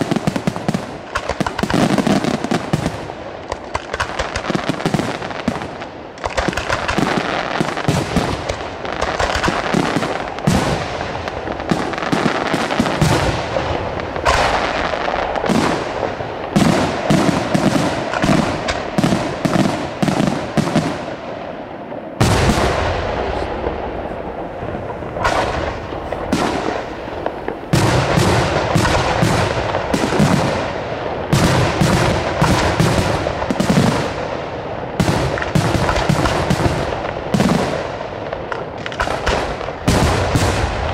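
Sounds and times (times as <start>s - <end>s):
firework crackling hiss: 22.2s - 40.9s.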